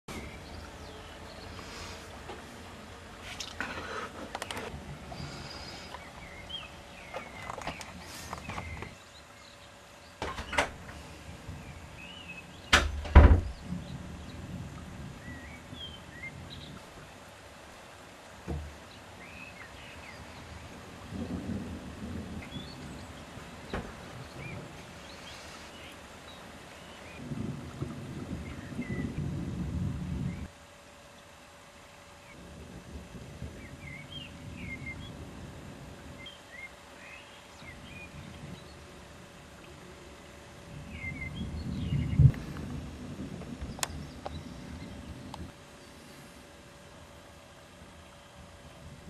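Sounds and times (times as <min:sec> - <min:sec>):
thunder clap with deep rumble: 0:10.2 - 0:17.2, 0:20.2 - 0:30.6, 0:32.3 - 0:36.3, 0:40.6 - 0:45.6
sharp thunder crack: 0:40.8 - 0:45.5.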